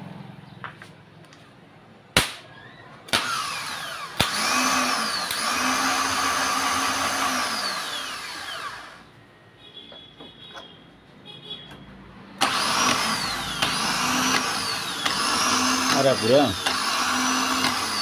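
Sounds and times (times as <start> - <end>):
starter motor whirring: 2.5 - 9.0, 12.4 - 18.0
sharp clicks: 4.2 - 5.6, 12.4 - 18.0.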